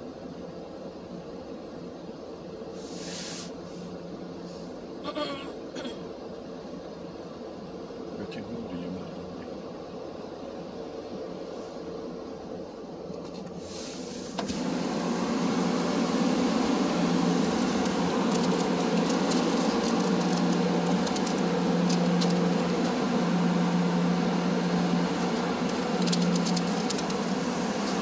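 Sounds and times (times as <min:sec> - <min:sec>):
car wash machinery drone: 0:06.6 - 0:28.0.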